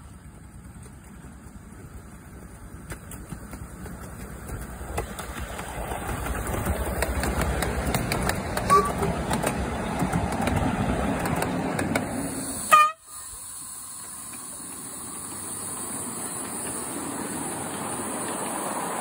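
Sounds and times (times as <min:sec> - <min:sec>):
railway carriages rumbling past: 0:00.0 - 0:19.0
steady background noise: 0:00.0 - 0:19.0
wheels clicking on rail joints: 0:00.0 - 0:19.0
horn toot: 0:08.7 - 0:09.1, 0:12.6 - 0:13.2.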